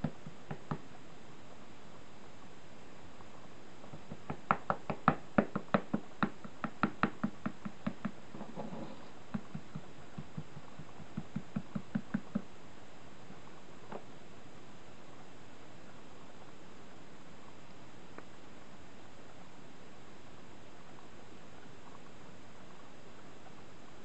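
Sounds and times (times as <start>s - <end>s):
paintbrush tapping on hard surface: 0.0s - 0.8s, 3.8s - 8.2s, 9.3s - 12.5s.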